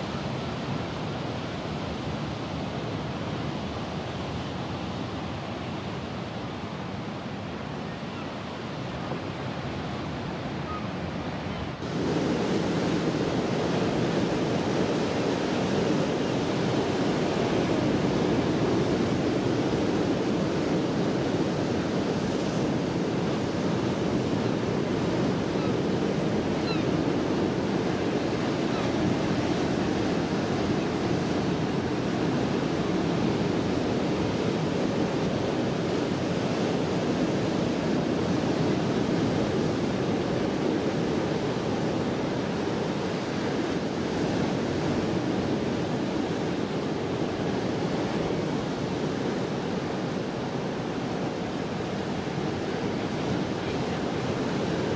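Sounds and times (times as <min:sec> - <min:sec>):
surf breaking on rocky shore: 0:11.8 - 0:54.9.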